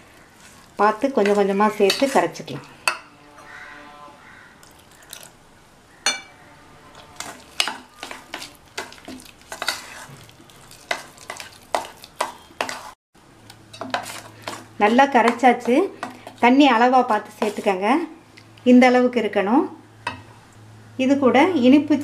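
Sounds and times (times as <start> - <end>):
spoon scraping metal bowl: 0.4 - 3.6, 6.2 - 13.0, 13.7 - 17.8.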